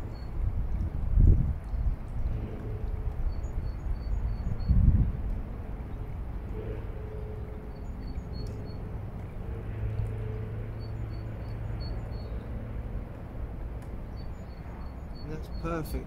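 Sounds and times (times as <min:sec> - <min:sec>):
distant engine drone: 0:00.0 - 0:16.0
steady low hum: 0:00.0 - 0:16.0
small birds chirping: 0:14.0 - 0:16.0.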